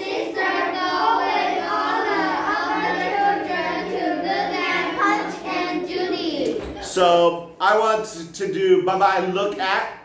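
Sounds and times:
children reading aloud in unison: 0.0s - 7.2s.

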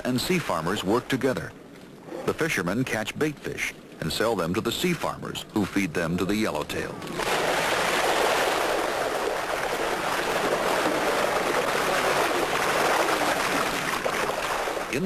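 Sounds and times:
fish splashing at water surface: 7.2s - 15.0s.

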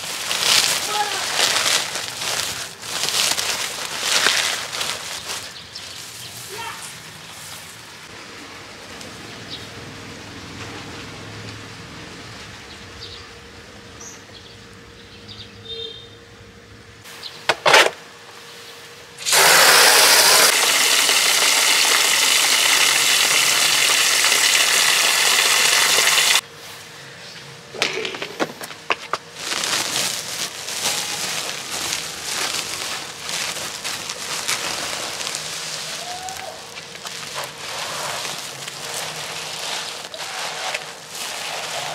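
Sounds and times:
plastic sack rustling: 0.0s - 8.0s, 28.4s - 41.9s
hose water rushing into basin: 19.2s - 26.4s, 37.4s - 41.9s.

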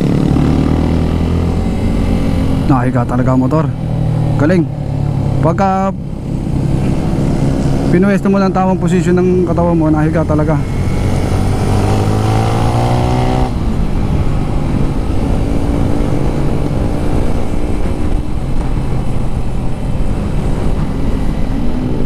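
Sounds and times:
motorcycle engine revving: 0.0s - 22.0s
wind rush on microphone: 10.6s - 22.0s.

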